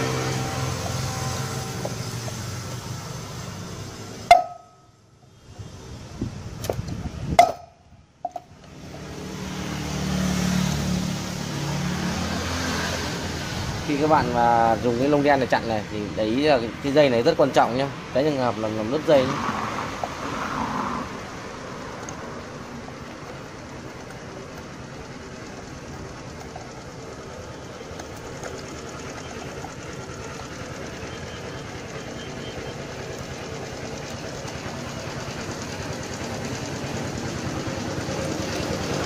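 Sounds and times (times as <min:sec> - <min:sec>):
mechanical hum: 0:00.0 - 0:13.9.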